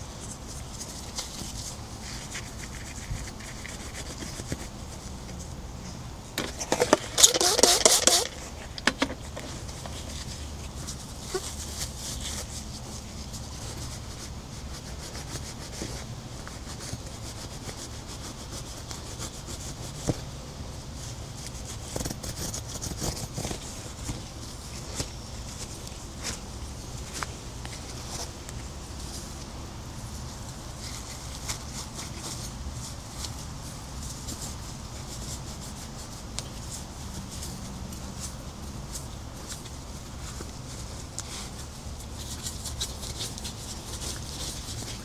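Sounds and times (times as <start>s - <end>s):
steady low hum: 0.0s - 45.0s
scrubbing on a surface: 0.2s - 5.4s, 9.4s - 20.3s.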